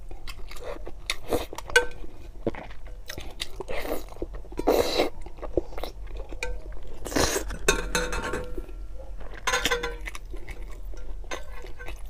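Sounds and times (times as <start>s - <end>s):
chewing: 0.0s - 12.0s
chopsticks clinking metal bowl: 7.5s - 12.0s.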